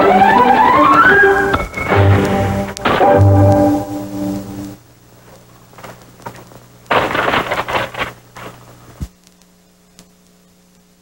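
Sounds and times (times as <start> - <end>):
faint background hiss: 0.0 - 11.0
mains hum: 0.0 - 11.0
rough noisy burst: 5.7 - 8.7
click: 9.2 - 10.1.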